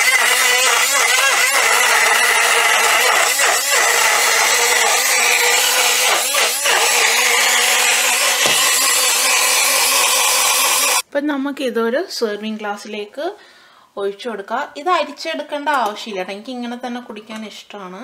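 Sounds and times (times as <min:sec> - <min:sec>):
portable blender motor whine: 0:00.0 - 0:11.0.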